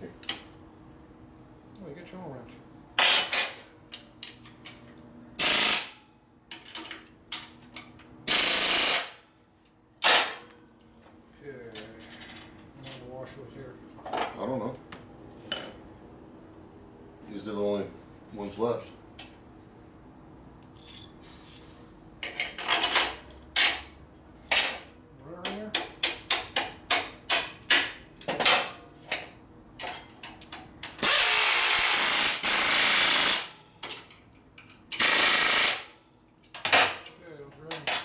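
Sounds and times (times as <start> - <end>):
pneumatic impact wrench: 5.4 - 6.0, 8.3 - 9.2, 30.9 - 33.6, 34.9 - 36.0
metal tools clinking: 20.7 - 23.8, 24.5 - 25.0, 29.8 - 30.2, 36.3 - 38.0.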